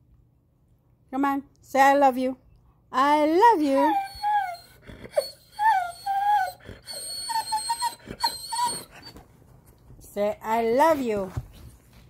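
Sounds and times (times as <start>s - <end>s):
dog whine-howling: 3.8s - 9.2s.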